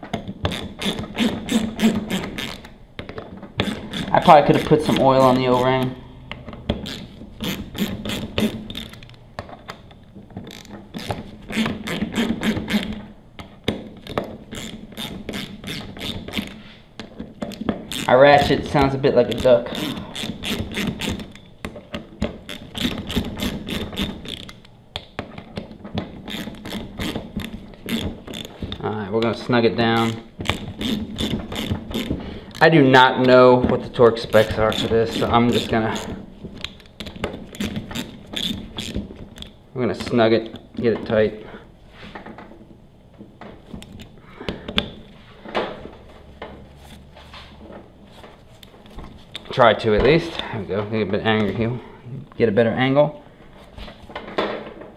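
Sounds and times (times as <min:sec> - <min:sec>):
socket ratchet clicking: 0:00.4 - 0:02.8, 0:03.6 - 0:09.9, 0:10.5 - 0:16.6, 0:17.5 - 0:21.6, 0:22.3 - 0:25.1, 0:26.2 - 0:28.8, 0:30.0 - 0:32.7, 0:34.3 - 0:39.6.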